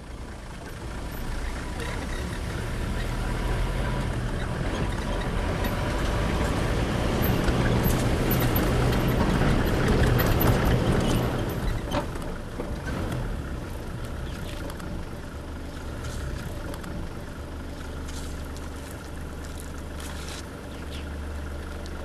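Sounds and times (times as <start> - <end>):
vehicle engine running: 0.0 - 22.0.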